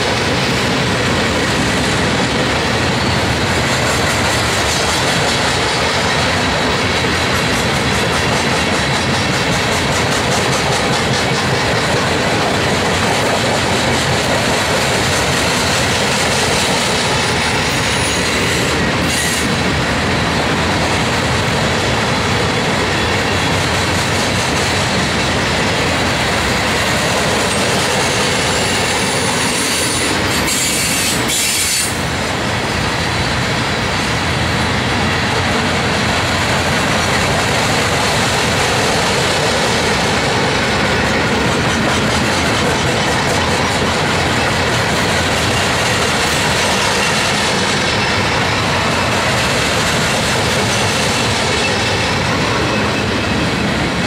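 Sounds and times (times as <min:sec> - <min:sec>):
train wheels rumbling on rails: 0:00.0 - 0:54.0
wheel squeal: 0:28.5 - 0:32.0.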